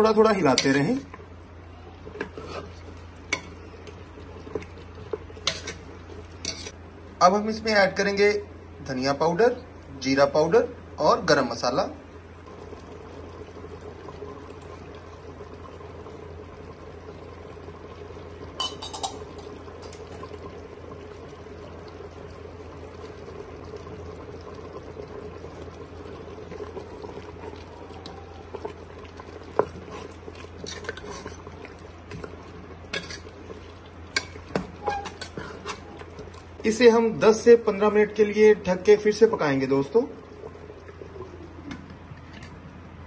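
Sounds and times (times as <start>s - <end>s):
steady low hum: 0.0s - 43.0s
ladle clinking against pot: 18.6s - 19.2s
metal ladle stirring curry: 29.5s - 32.3s, 32.9s - 36.4s.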